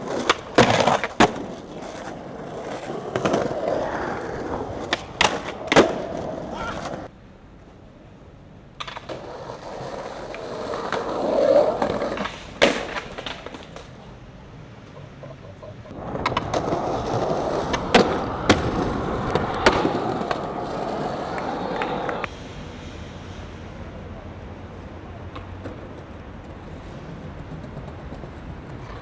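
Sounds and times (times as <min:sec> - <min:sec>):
skateboard popping and landing: 0:00.0 - 0:07.1, 0:08.8 - 0:14.1, 0:15.9 - 0:22.3
skateboard wheels rolling: 0:00.0 - 0:29.0.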